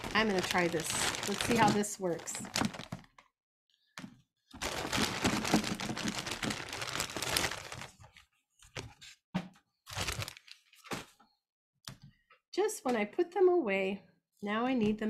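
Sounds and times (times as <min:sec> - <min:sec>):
crinkling and crackling: 0:00.0 - 0:03.2, 0:04.6 - 0:09.0, 0:09.9 - 0:11.2.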